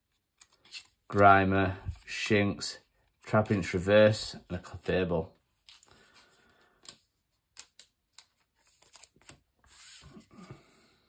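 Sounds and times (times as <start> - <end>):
cards clicking and tapping: 6.6 - 9.5.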